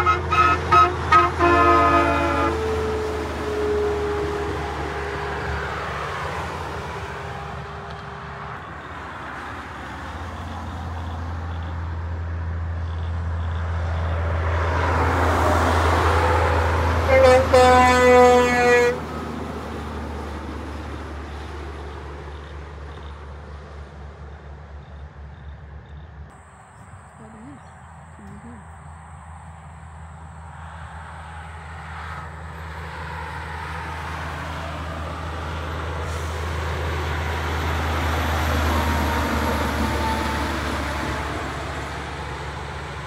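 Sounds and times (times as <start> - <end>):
air horn blast: 0.0 - 4.6, 17.0 - 19.1
truck passing: 0.0 - 43.0.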